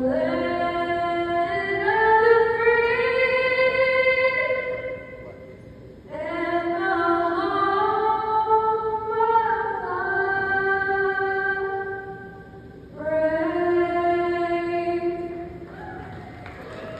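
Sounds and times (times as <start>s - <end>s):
woman singing unaccompanied: 0.0s - 5.2s, 6.1s - 15.7s.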